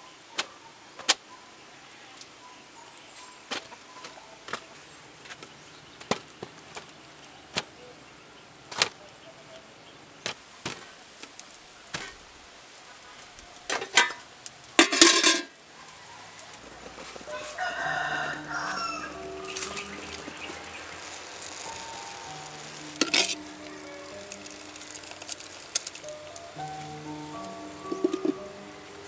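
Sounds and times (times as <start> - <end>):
corn cobs clicking against a pot: 13.1 - 15.6, 19.4 - 28.5
rooster crowing: 15.8 - 22.8.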